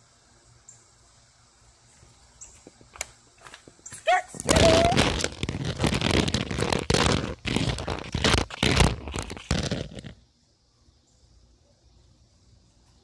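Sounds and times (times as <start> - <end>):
microphone handling noise: 4.4 - 10.2.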